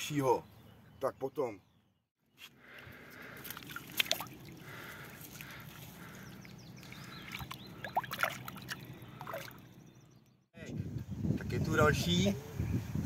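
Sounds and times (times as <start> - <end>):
water sloshing and dripping: 2.7 - 9.8
sharp splashes: 3.0 - 9.7.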